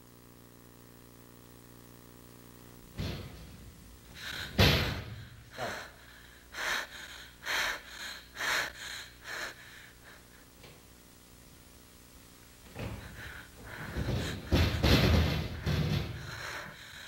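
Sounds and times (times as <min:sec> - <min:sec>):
door slamming shut: 0:03.0 - 0:03.6
woman panting heavily: 0:04.1 - 0:10.6, 0:12.7 - 0:17.0.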